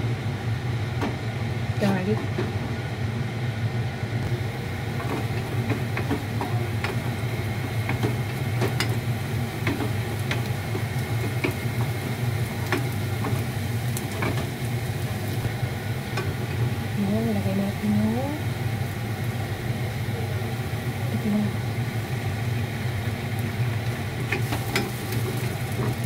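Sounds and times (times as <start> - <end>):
garlic sizzling in oil: 4.2 - 26.0.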